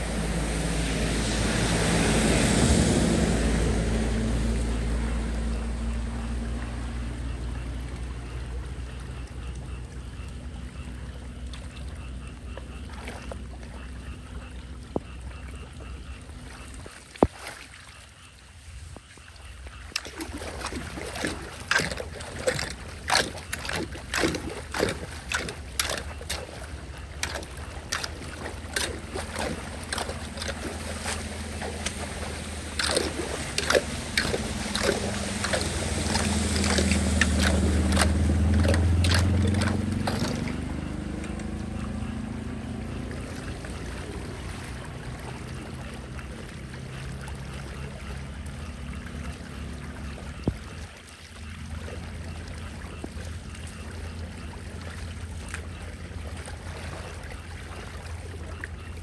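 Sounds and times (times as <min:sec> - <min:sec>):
floodwater rushing into drain: 0:00.0 - 0:59.0
hand rake splashing and scraping: 0:19.9 - 0:41.8.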